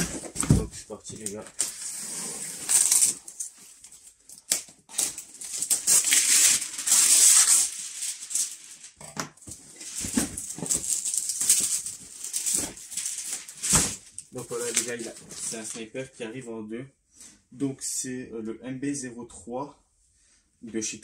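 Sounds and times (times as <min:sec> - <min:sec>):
knife slitting packing tape: 0:01.6 - 0:03.4, 0:04.4 - 0:08.6.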